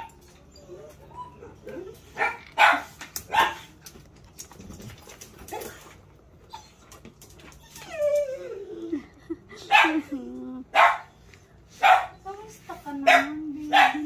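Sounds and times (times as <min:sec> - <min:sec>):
dog barking: 0:02.1 - 0:03.7, 0:09.7 - 0:10.0, 0:10.7 - 0:11.1, 0:11.8 - 0:12.2, 0:13.0 - 0:14.0.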